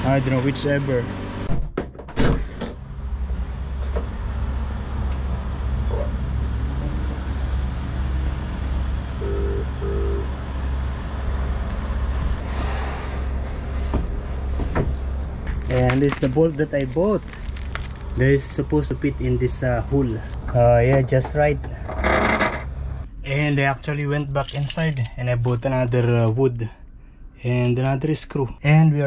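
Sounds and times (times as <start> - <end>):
vehicle rumble: 0.0 - 1.5, 2.3 - 28.4
short beeps: 9.2 - 10.3.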